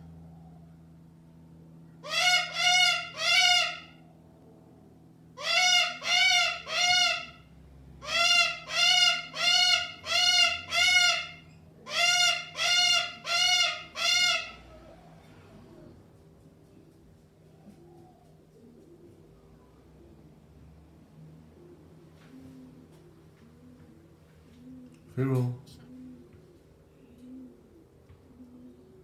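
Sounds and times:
cockatoo calling: 0:01.9 - 0:04.2, 0:05.4 - 0:16.0.

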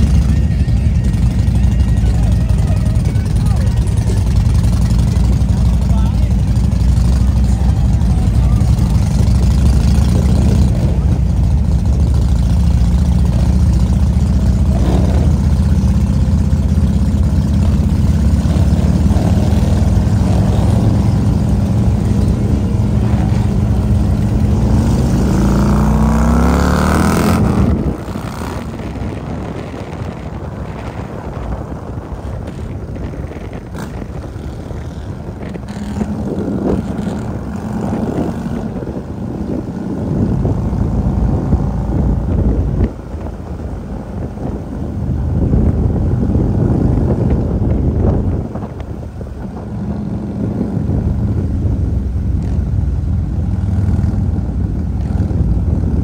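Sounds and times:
motorcycle engines idling: 0:00.0 - 0:26.4, 0:27.1 - 0:56.0
road and wind noise: 0:00.0 - 0:56.0
engine revving: 0:12.1 - 0:30.3.

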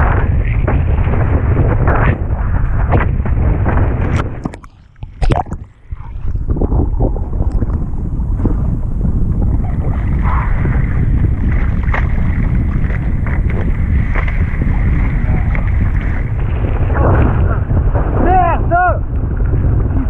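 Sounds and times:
wind buffeting microphone: 0:00.0 - 0:20.0
water rushing and splashing: 0:04.1 - 0:08.0, 0:09.5 - 0:17.4.

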